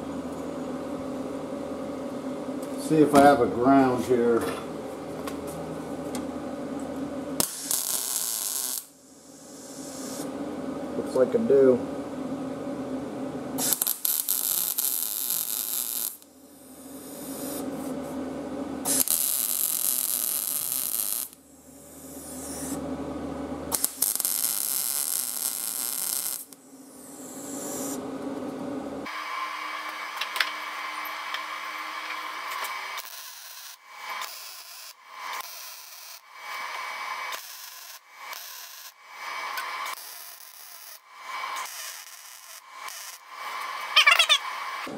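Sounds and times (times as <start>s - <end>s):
welder arc sizzling: 7.4s - 10.4s, 13.6s - 18.2s, 18.8s - 22.9s, 23.7s - 28.0s, 29.0s - 44.9s.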